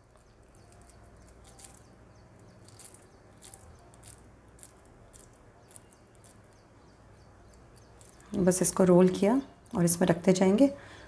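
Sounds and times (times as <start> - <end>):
fingers squishing moist mixture: 0.0 - 8.4.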